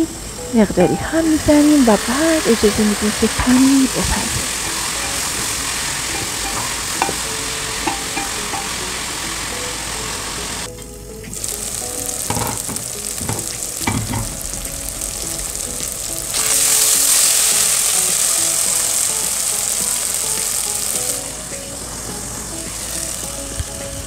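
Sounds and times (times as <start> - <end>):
vegetables sizzling in oil: 0.0 - 24.0
spatula knocking on pot: 3.3 - 9.0, 12.3 - 14.4.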